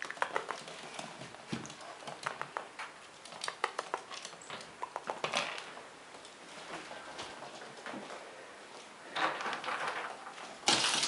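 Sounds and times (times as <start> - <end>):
squirrel claws tapping on floor: 0.0 - 6.3.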